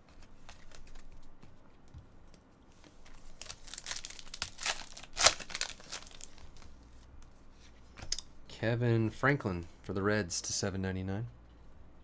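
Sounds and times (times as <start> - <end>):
foil wrapper crinkling and tearing: 3.2 - 6.7.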